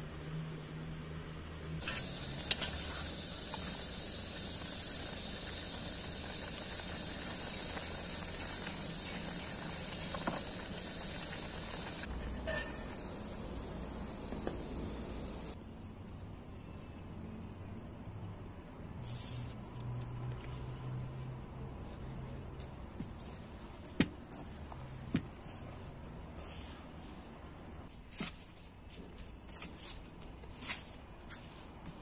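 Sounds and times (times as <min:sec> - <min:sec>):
pot boiling with high hiss: 0:01.6 - 0:15.6, 0:20.2 - 0:28.8.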